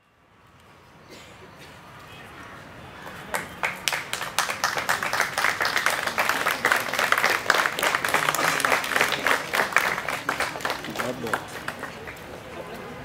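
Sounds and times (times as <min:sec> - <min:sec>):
crowd applauding: 0:03.0 - 0:13.0.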